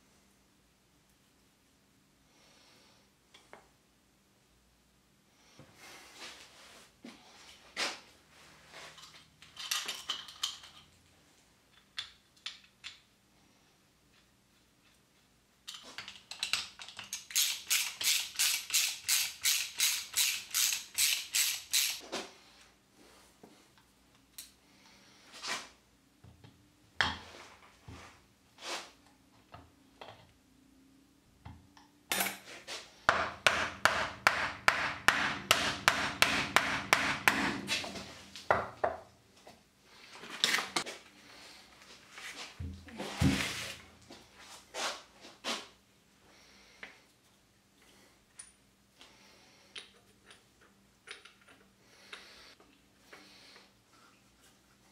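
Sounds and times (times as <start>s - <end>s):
hammer striking wooden block: 33.1s - 37.6s.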